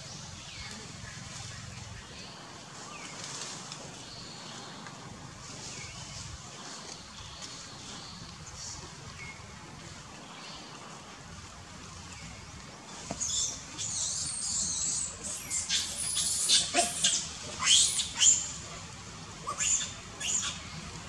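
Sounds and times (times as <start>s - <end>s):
baby monkey squealing: 13.8s - 18.5s, 19.5s - 20.6s.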